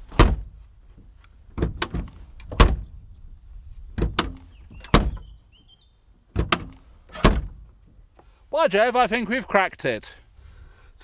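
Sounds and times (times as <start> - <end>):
tailgate latch clunking: 0.1 - 0.5, 1.5 - 2.9, 4.0 - 5.3, 6.3 - 7.7.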